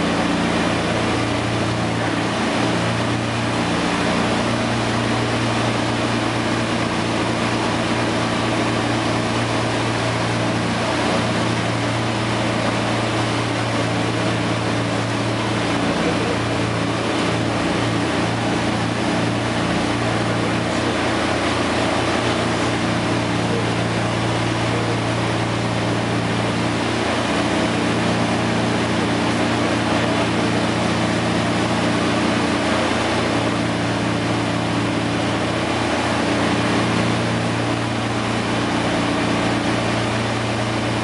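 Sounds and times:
broad rushing noise: 0.0 - 41.0
piston engines droning: 0.0 - 41.0.

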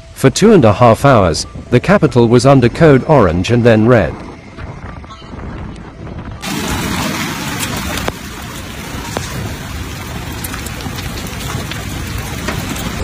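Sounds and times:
hailstones ticking on hard surfaces: 6.4 - 13.0
rain hissing: 6.4 - 13.0.

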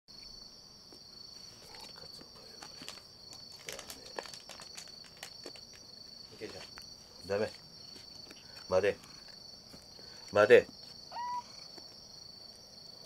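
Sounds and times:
high-pitched insect trill: 0.1 - 13.0.

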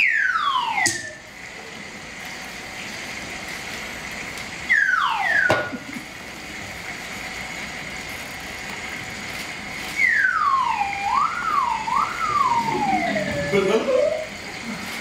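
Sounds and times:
voice swooping down in pitch: 10.8 - 14.4.

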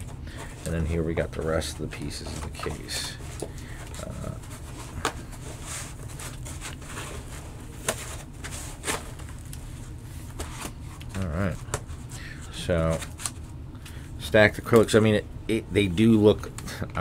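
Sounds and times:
foam packing rustling: 0.0 - 13.5.

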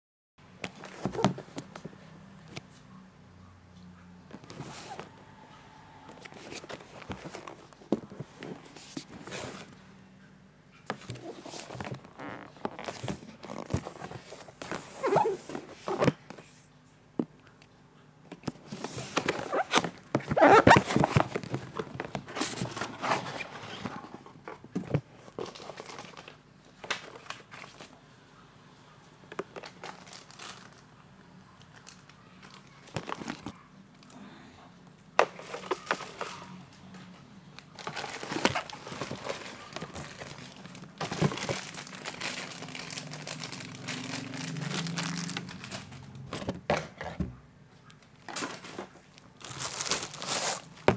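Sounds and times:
cardboard rustling and scraping: 0.6 - 2.0, 4.3 - 5.2, 6.1 - 9.8, 10.9 - 16.7, 18.4 - 26.3, 37.8 - 47.4, 48.3 - 50.9
bubble wrap handled: 11.0 - 16.2, 18.7 - 24.0, 29.6 - 30.8, 35.3 - 36.5, 37.6 - 46.3, 48.3 - 50.9.

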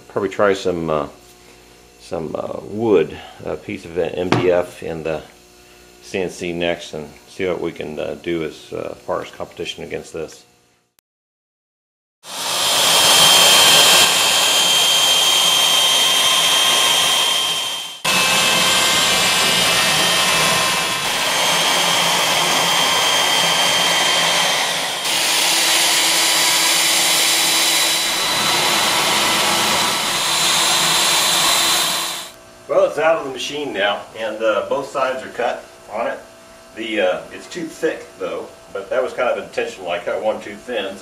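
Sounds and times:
cnc router spindle whine: 12.3 - 32.4.

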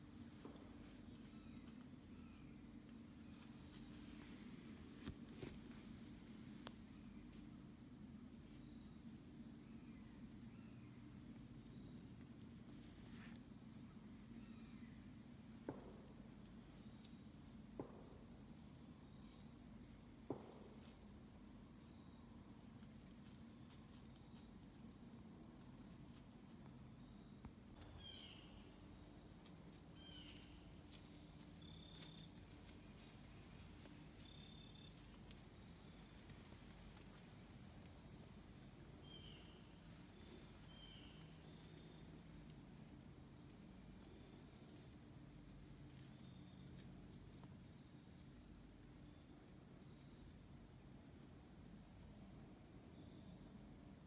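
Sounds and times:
quieter low insect calls: 0.0 - 54.0
high-pitched insect trill: 18.6 - 54.0.

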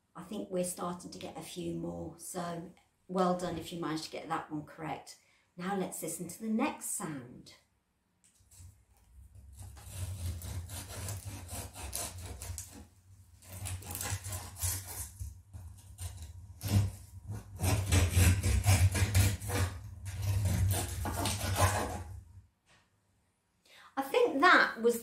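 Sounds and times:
knife sawing through bread: 9.4 - 22.1.

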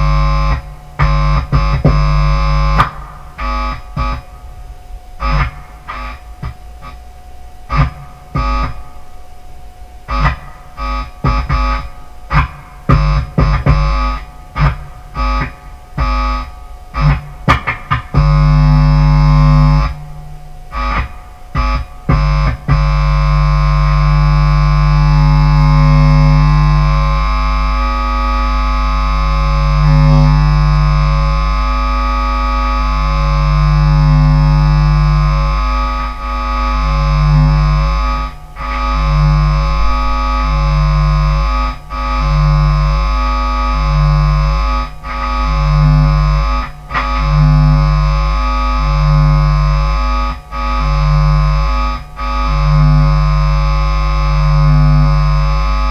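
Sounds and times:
distorted bass guitar: 0.0 - 55.9.

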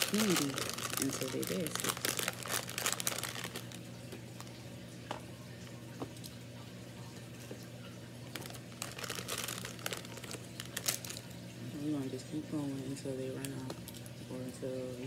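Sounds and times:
plastic packaging crinkling: 0.0 - 4.6, 8.3 - 11.5
low steady hum: 0.0 - 15.0.

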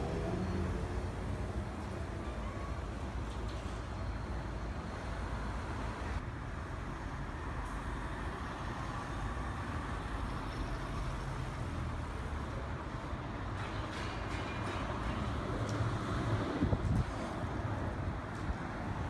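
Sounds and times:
cars driving past: 0.0 - 2.1
bus pulling away: 0.0 - 6.2.

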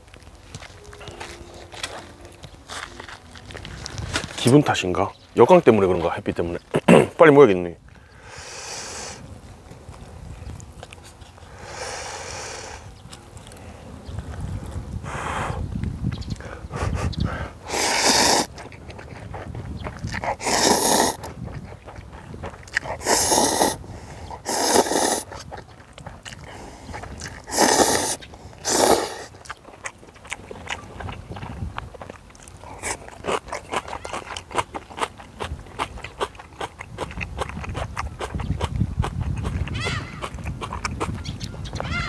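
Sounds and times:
wind rumble on microphone: 0.0 - 5.3, 7.7 - 42.0
close-up chewing: 0.0 - 6.8, 9.2 - 42.0
noodles slurped: 17.6 - 41.2.

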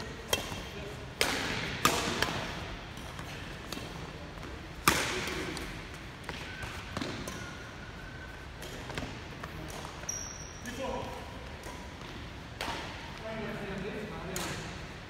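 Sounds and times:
rackets striking shuttlecock: 0.2 - 4.1, 4.8 - 10.4, 11.6 - 13.1, 14.3 - 14.8.

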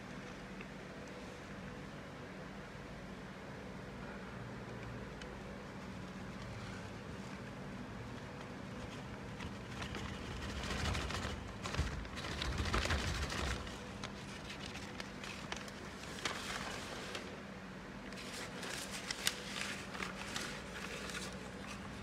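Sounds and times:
steady low hum: 0.0 - 22.0
paper rustling and crinkling: 8.1 - 17.4, 18.1 - 22.0.

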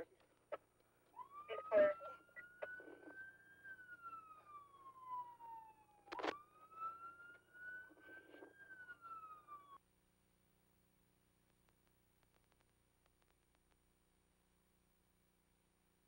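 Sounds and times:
police siren wailing: 1.1 - 9.8.

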